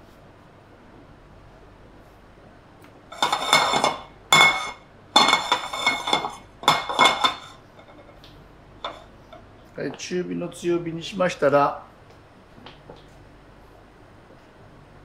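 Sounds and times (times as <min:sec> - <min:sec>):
frying pan scraping on metal grate: 0:03.1 - 0:08.2.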